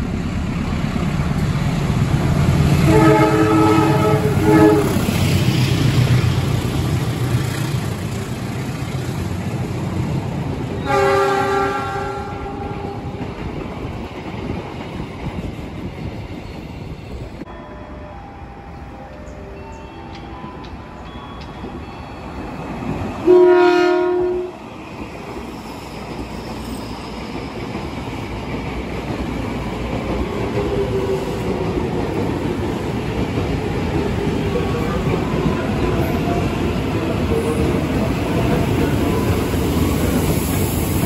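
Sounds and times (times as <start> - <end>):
train rail and wheel noise: 0.0 - 41.0
train horn blast: 2.8 - 5.1, 10.8 - 13.1, 23.2 - 24.6.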